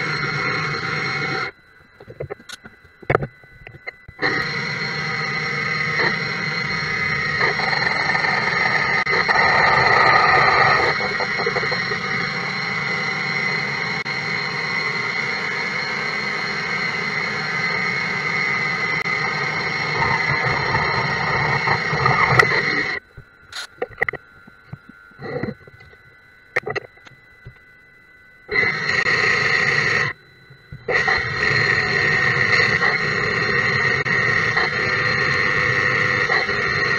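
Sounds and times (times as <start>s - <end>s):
high-pitched whine: 0.0s - 36.9s
lathe cutting metal: 4.2s - 12.4s.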